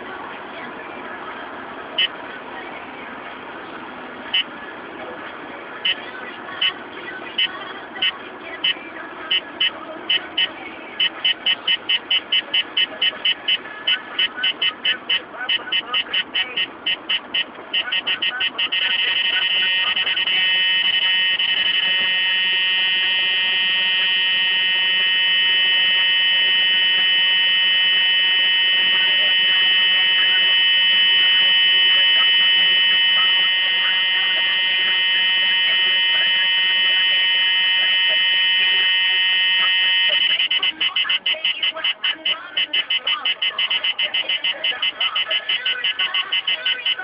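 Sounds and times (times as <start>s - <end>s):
radar detector buzzing tone: 17.8s - 47.0s.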